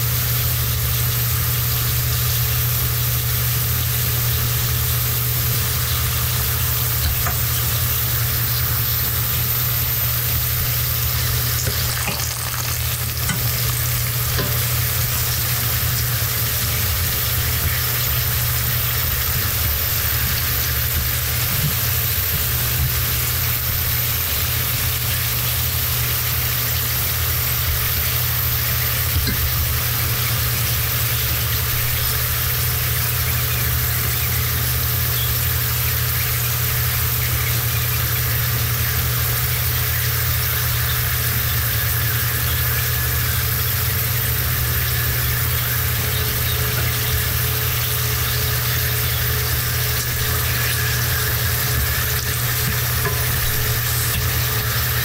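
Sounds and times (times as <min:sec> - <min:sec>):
steady low hum: 0:00.0 - 0:25.6
food sizzling in hot oil: 0:00.0 - 0:55.0.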